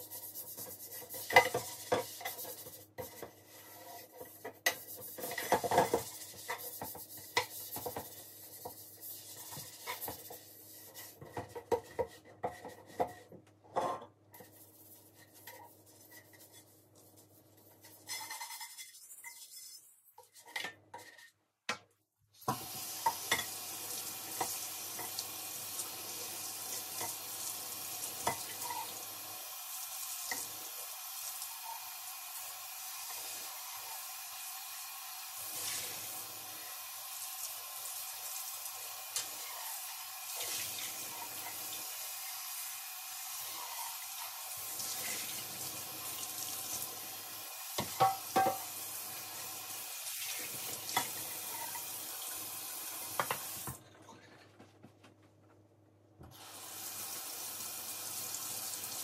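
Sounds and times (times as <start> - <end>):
dishes clattering: 47.8 - 48.7
tap running into sink: 47.8 - 48.7, 53.1 - 53.8.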